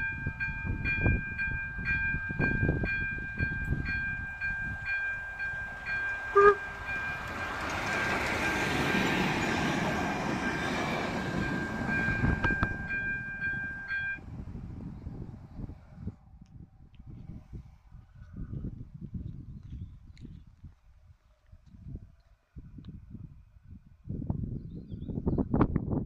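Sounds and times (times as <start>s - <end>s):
crossing warning bell ringing: 0.0s - 14.2s
steam train passing: 0.0s - 14.9s
train wheel clicks: 3.6s - 13.9s
train whistle blast: 6.3s - 6.9s.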